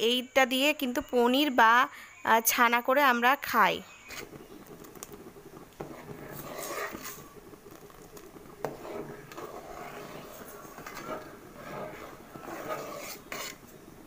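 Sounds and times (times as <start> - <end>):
ladle stirring milk: 3.9 - 14.0.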